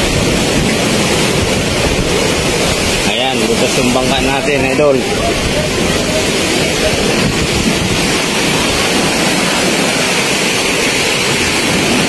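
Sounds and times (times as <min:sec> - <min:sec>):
rough waves: 0:00.0 - 0:12.0
strong storm wind: 0:00.0 - 0:12.0
wind hitting the microphone: 0:00.0 - 0:12.0.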